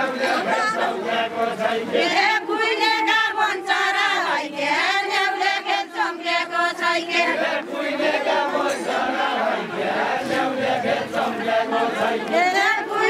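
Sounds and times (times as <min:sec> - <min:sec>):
women singing in unison: 0:00.0 - 0:13.0.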